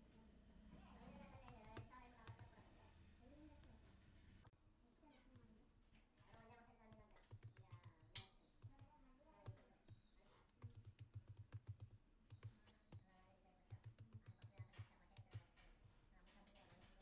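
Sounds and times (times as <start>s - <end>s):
faint keyboard typing: 0.8s - 2.8s, 6.2s - 17.0s.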